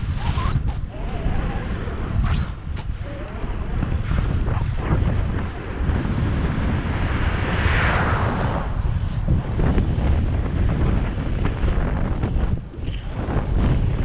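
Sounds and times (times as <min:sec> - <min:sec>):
wind buffeting microphone: 0:00.0 - 0:14.0
car passing: 0:06.0 - 0:09.9.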